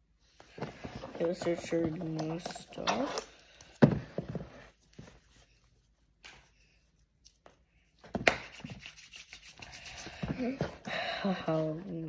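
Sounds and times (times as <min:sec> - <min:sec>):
hands rubbing and rustling: 0:04.4 - 0:10.8
hands slapping: 0:06.2 - 0:06.6, 0:08.1 - 0:10.5.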